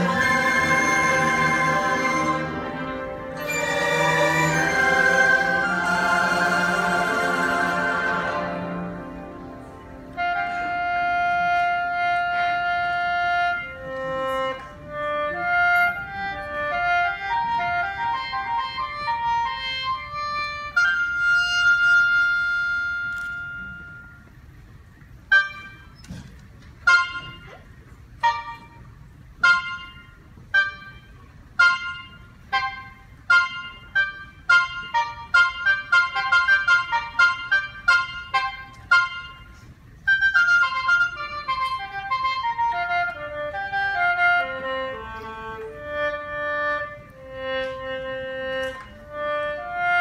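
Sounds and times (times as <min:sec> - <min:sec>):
orchestra chord: 0:00.0 - 0:12.1
mouth organ solo: 0:00.0 - 0:23.0.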